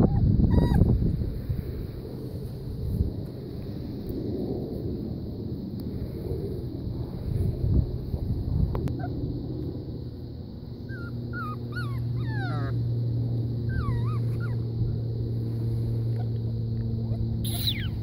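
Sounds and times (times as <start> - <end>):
puppy whimpering: 0.0 - 0.9, 10.9 - 12.8, 13.7 - 14.6, 17.1 - 18.0
steady low hum: 0.0 - 18.0.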